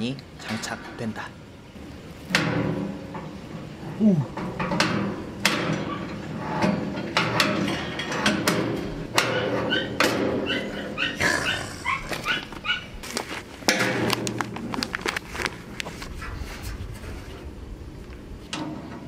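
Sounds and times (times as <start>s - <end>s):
metal clanks of grill assembly: 2.3s - 3.4s, 4.4s - 10.9s.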